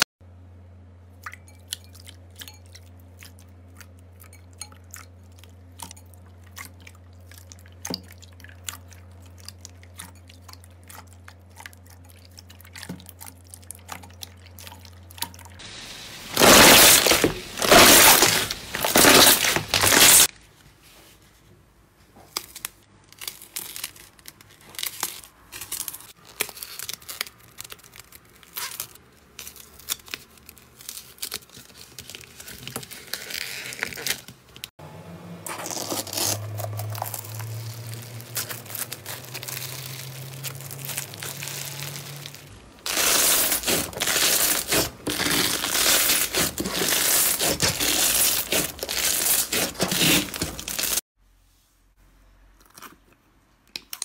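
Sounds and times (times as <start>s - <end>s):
slime crinkling and crackling: 5.1s - 20.3s, 22.3s - 34.7s, 35.5s - 51.0s.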